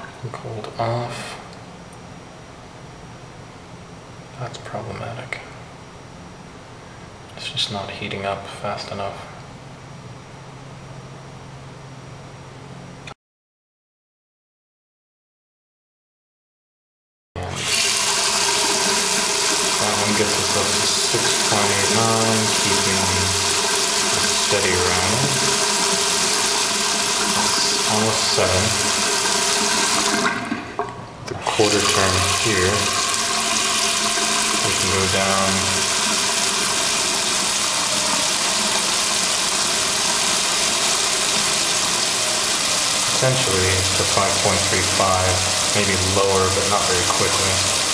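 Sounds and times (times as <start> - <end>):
faucet water splashing into sink: 17.5 - 47.9.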